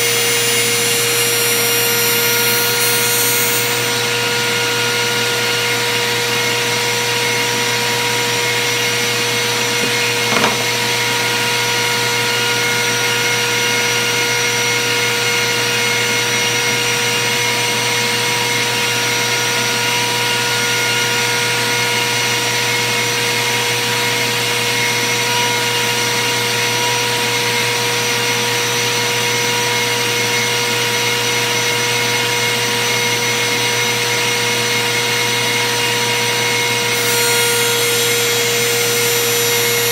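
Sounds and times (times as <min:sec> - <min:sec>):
short knock: 0:09.7 - 0:11.4
electric motor whining: 0:36.9 - 0:39.9.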